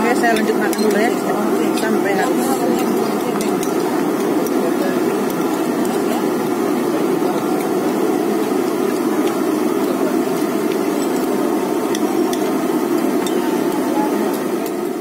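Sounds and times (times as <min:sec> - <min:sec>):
engine-like hum: 0:00.0 - 0:15.0
cutlery clinking on plates: 0:00.3 - 0:01.1.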